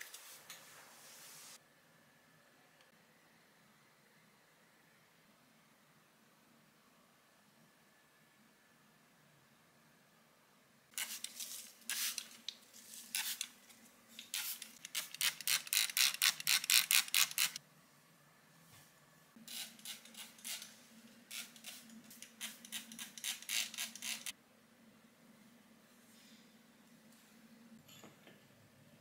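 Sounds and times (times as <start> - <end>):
spray bottle squirting: 11.0 - 12.4, 13.1 - 13.5, 14.2 - 17.6
faint steady hum: 24.3 - 29.0.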